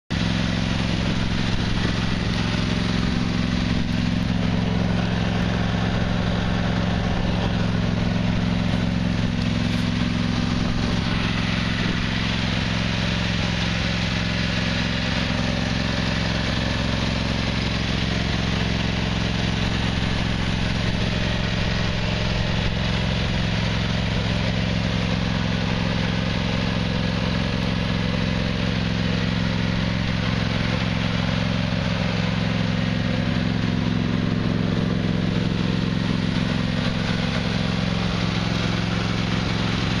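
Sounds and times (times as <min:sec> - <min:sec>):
mower engine idling: 0:00.1 - 0:40.0.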